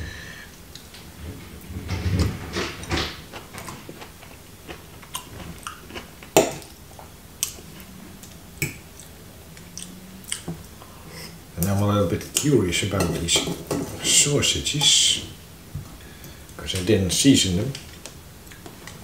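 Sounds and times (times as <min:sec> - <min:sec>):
person chewing food: 0:03.2 - 0:06.8, 0:07.4 - 0:11.3, 0:17.9 - 0:19.0.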